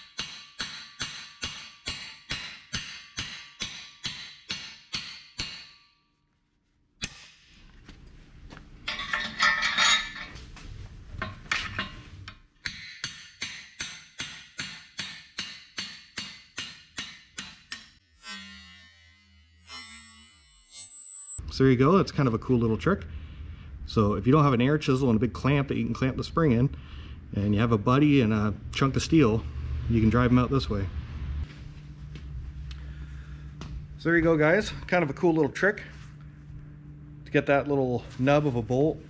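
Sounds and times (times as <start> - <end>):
hammer striking steel punch: 0.0 - 6.1, 7.0 - 7.6, 12.6 - 18.0.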